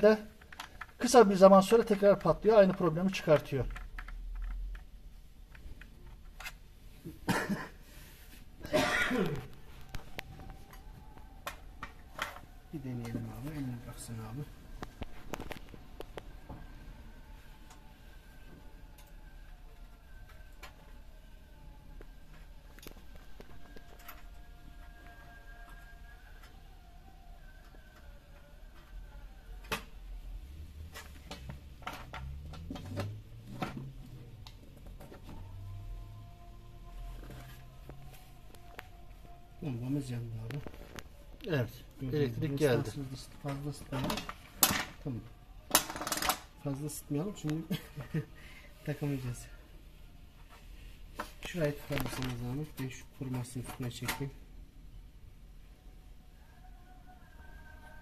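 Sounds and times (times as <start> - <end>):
person coughing: 7.1 - 7.8, 8.6 - 9.5.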